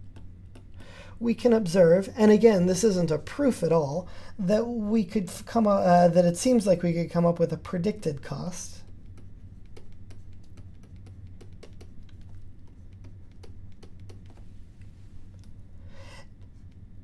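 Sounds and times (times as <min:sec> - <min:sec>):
low electrical hum: 0:00.0 - 0:17.0
stylus clicking on a tablet: 0:08.9 - 0:14.4.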